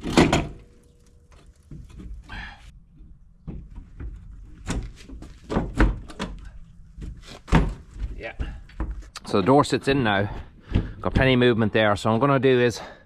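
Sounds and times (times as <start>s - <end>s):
steel door clunking against frame: 0.0s - 0.8s.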